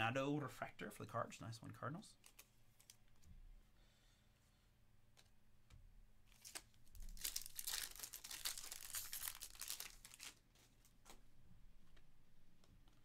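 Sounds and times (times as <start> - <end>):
foil wrapper tearing and crinkling: 6.3 - 10.4.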